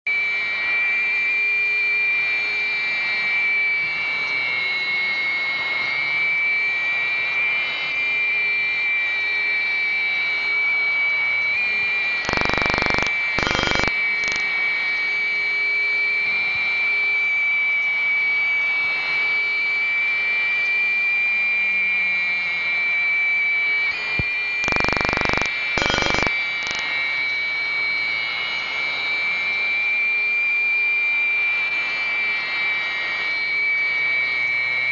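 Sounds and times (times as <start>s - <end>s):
jet turbine whine: 0.1s - 34.9s.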